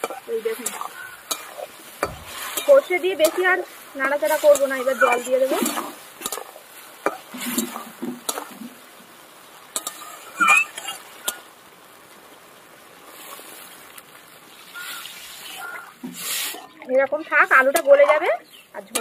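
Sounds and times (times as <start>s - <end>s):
water pouring into hot pan: 0.0s - 19.0s
wooden spatula knocking on pan: 2.0s - 2.3s.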